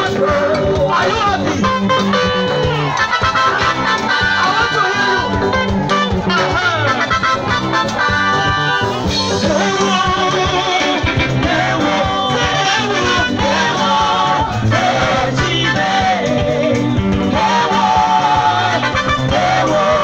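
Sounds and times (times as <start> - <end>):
person singing: 0.0 - 1.7, 9.2 - 20.0
drums: 0.0 - 20.0
electric guitar: 0.0 - 20.0.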